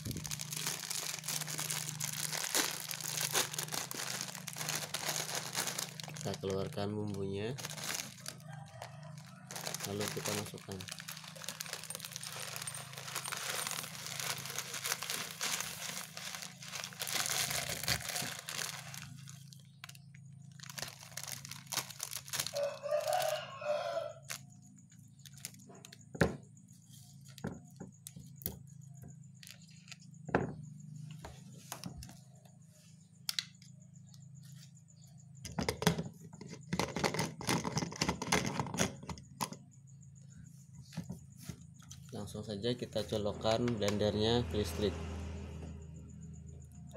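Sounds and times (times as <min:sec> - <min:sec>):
plastic sachet crinkling: 0:00.0 - 0:23.4.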